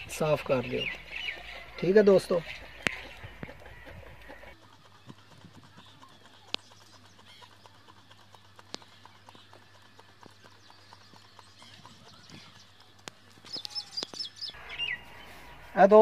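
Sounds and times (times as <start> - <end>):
high bird chirps: 13.4 - 15.6.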